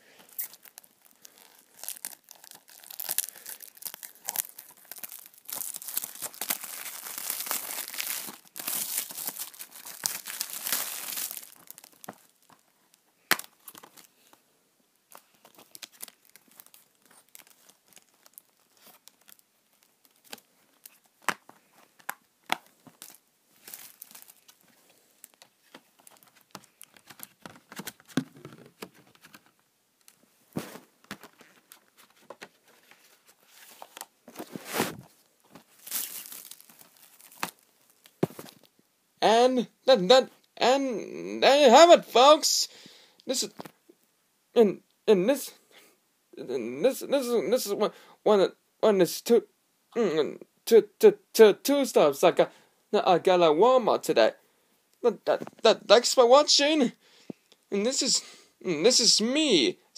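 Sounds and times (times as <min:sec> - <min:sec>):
plastic wrapping tearing and crinkling: 0:00.3 - 0:12.6, 0:15.1 - 0:29.4, 0:33.6 - 0:38.7.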